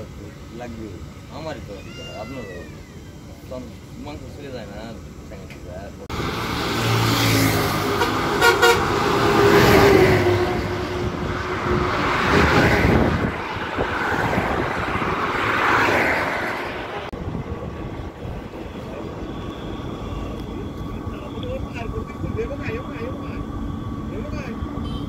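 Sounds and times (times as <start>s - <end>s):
vehicles passing on bridge: 0.0s - 25.0s
car horn beeps: 8.0s - 8.9s, 24.8s - 25.0s.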